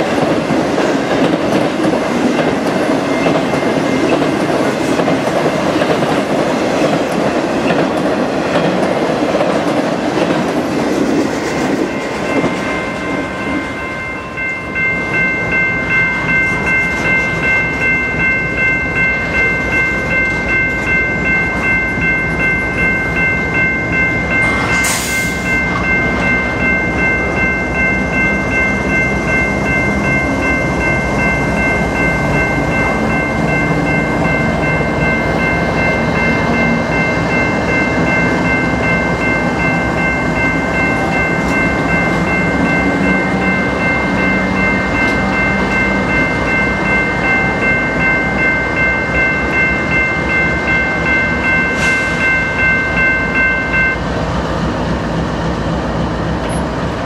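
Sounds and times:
crossing warning bells: 0:00.0 - 0:57.0
diesel locomotive passing: 0:00.0 - 0:57.0.

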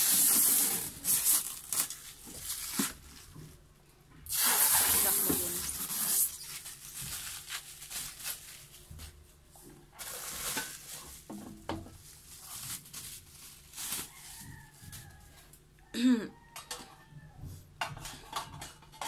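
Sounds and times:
plastic packaging crinkling: 0:00.0 - 0:03.6, 0:04.3 - 0:15.2.

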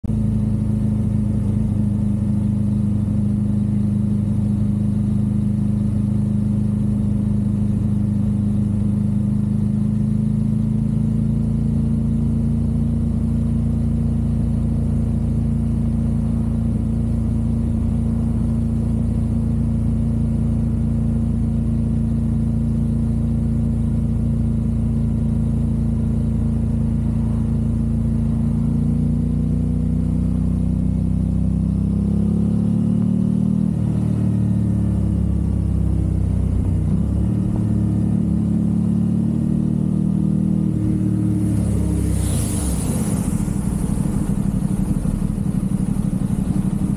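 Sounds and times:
motorcycle engine cruising: 0:25.3 - 0:46.9.

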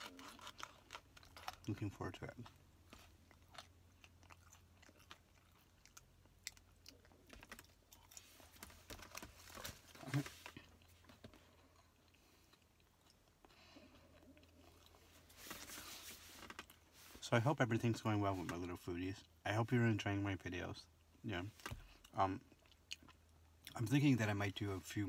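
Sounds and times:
person chewing food: 0:00.0 - 0:15.3, 0:21.8 - 0:23.8.

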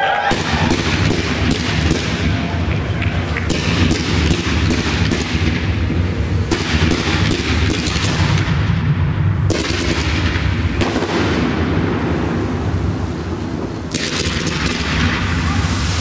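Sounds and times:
fireworks bangs: 0:00.0 - 0:16.0
low rumble: 0:00.3 - 0:14.0.

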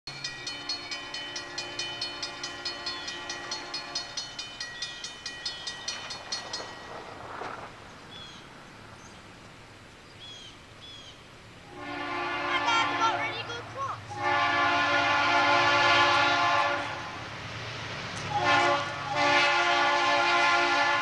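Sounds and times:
crossing warning bell ringing: 0:00.1 - 0:07.6, 0:18.3 - 0:19.8.

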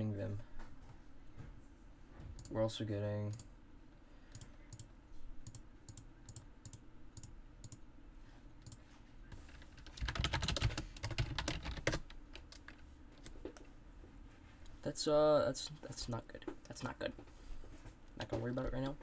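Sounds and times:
faint low hum: 0:00.0 - 0:19.0
keyboard typing: 0:09.5 - 0:13.3.

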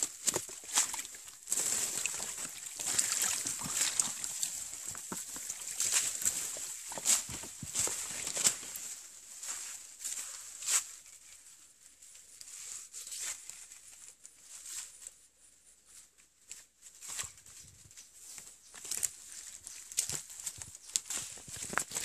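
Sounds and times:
dry leaves rustling and crackling: 0:00.0 - 0:11.0, 0:18.2 - 0:22.0
footsteps on forest floor: 0:00.0 - 0:11.0.

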